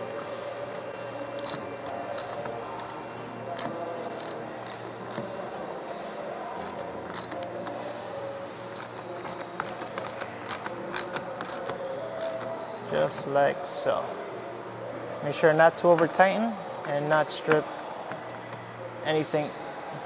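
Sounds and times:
ratchet clicking: 0:01.4 - 0:03.0, 0:03.6 - 0:05.2, 0:06.6 - 0:07.5, 0:08.7 - 0:12.5.

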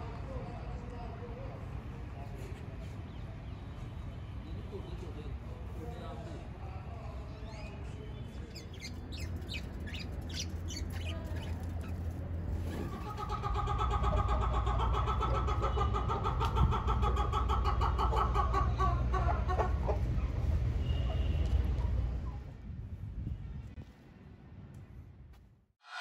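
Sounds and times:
birds chirping: 0:07.4 - 0:12.4.

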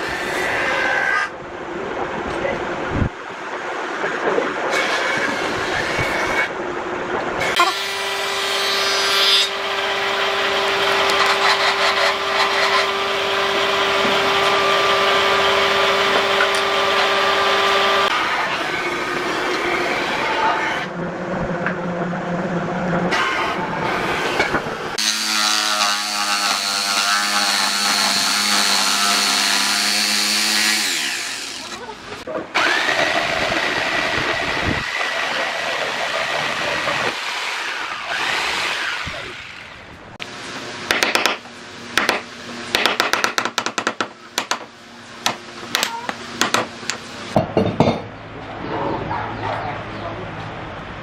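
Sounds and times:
jigsaw cutting wood: 0:07.6 - 0:18.7, 0:25.0 - 0:31.8, 0:32.5 - 0:39.8.

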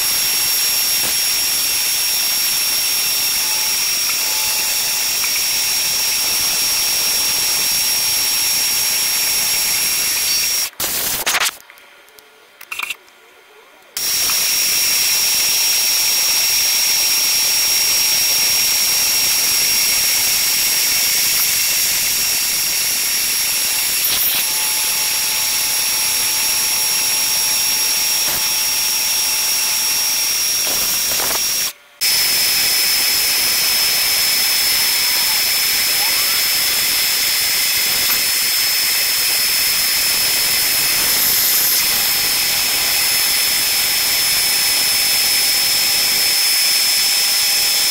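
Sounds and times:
milling machine whine: 0:00.0 - 0:11.1, 0:14.0 - 0:47.9.

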